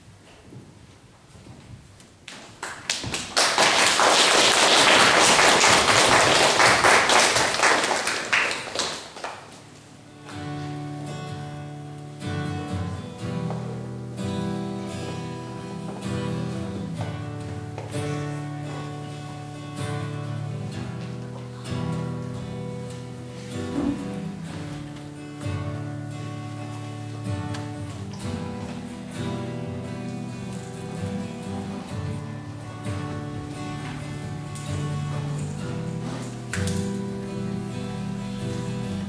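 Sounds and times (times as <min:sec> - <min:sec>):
audience applause: 0:02.6 - 0:09.6.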